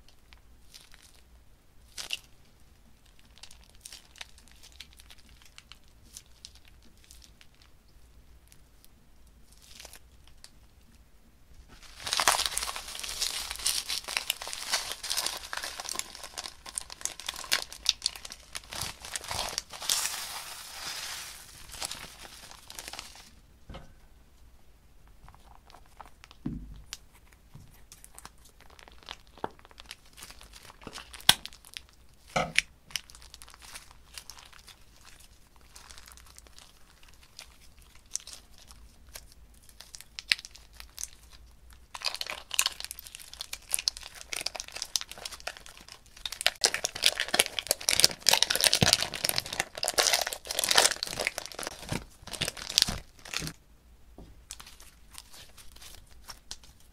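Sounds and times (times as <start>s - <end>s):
slime crinkling and crackling: 0.0s - 8.9s, 9.5s - 10.6s, 11.6s - 23.4s, 25.1s - 53.6s, 54.4s - 56.9s
hands squeezing slime: 11.7s - 23.4s, 25.3s - 53.6s, 54.5s - 56.9s.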